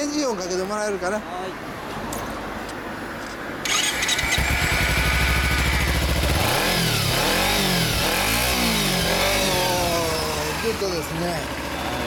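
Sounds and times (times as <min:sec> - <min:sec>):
motorcycle engine revving: 0:03.6 - 0:12.0.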